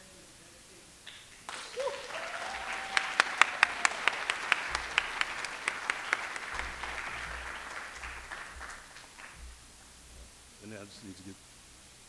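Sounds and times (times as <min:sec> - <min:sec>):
loud single claps: 0:01.1 - 0:09.5
audience applauding: 0:01.5 - 0:09.5.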